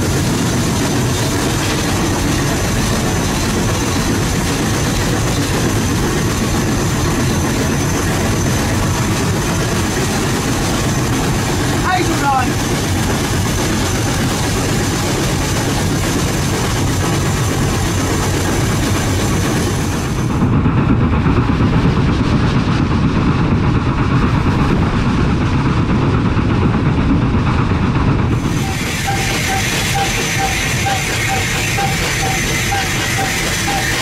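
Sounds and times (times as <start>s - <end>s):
wheels rumbling on rails: 0.0s - 34.0s
steam hiss: 28.3s - 34.0s.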